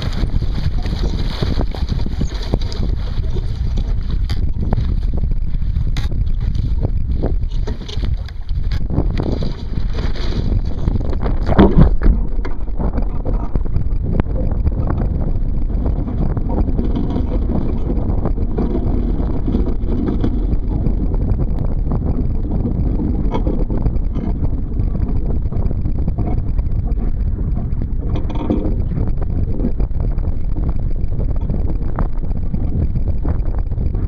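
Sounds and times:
wind rumbling on microphone: 0:00.0 - 0:34.0
water slapping against boat hull: 0:07.2 - 0:13.7.

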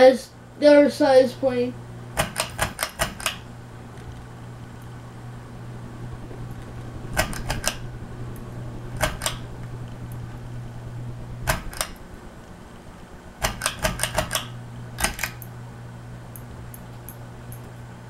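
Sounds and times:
ceiling fan motor humming: 0:00.0 - 0:18.0
sharp rapid clicks: 0:02.2 - 0:03.4, 0:13.4 - 0:15.5.

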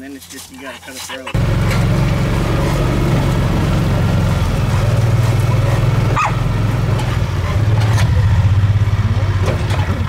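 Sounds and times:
vehicle engine running: 0:01.3 - 0:10.0
dog yip: 0:06.2 - 0:06.4.

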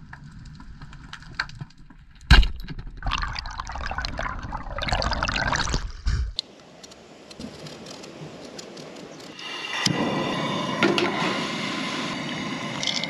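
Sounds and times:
bubbling water noise: 0:02.8 - 0:06.4.

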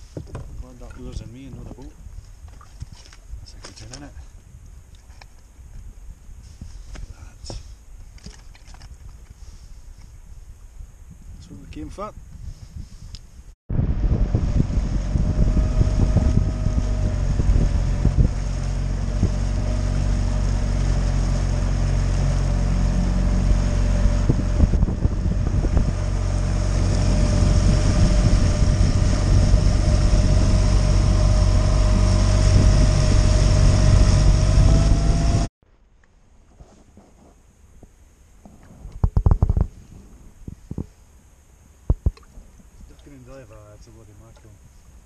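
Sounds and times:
wind buffeting microphone: 0:10.0 - 0:35.5
outboard motor running: 0:13.9 - 0:35.5.

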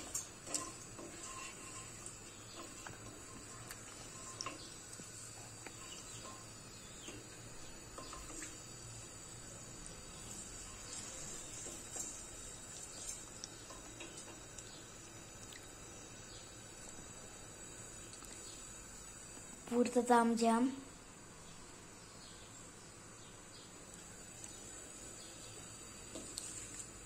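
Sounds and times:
wooden spoon scraping pot: 0:00.0 - 0:04.7
noodles sizzling in oil: 0:00.0 - 0:27.0.

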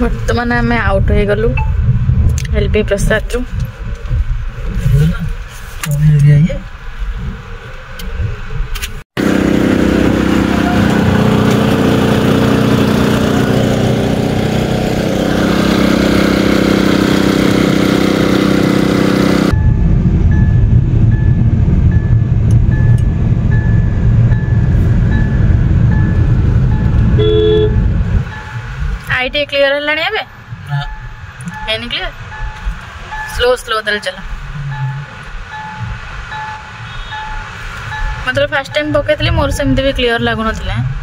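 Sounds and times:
road rumble inside car: 0:00.0 - 0:12.0, 0:15.2 - 0:41.0
petrol engine running crusher: 0:09.2 - 0:19.5.

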